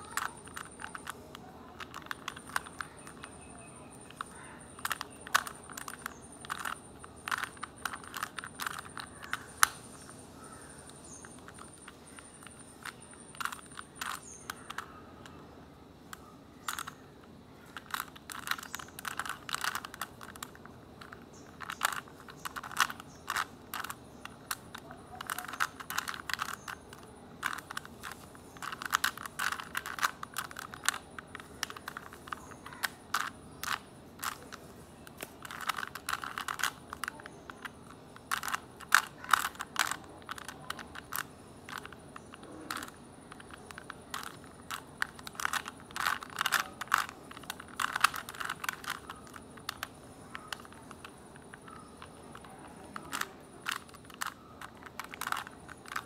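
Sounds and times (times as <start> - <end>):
puzzle cube clicking and scraping: 0.0 - 56.0.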